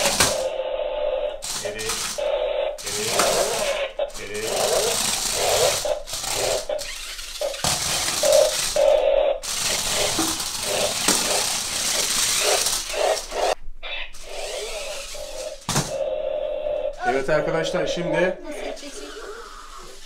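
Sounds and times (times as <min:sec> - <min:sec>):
electric motors whirring: 0:00.0 - 0:13.6, 0:14.2 - 0:17.1, 0:17.8 - 0:20.0
plastic toy car rattling on floor: 0:02.9 - 0:08.8, 0:09.4 - 0:13.6.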